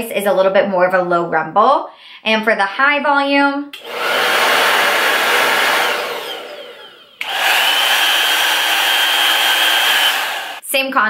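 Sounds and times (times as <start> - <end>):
hair dryer blowing air: 3.8 - 10.6
hair dryer with high whine: 3.8 - 10.6.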